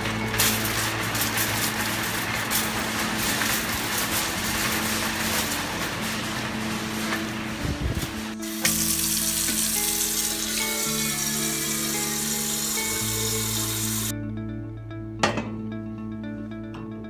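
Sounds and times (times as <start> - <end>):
shopping cart rolling and rattling: 0.0 - 8.4, 9.6 - 14.1.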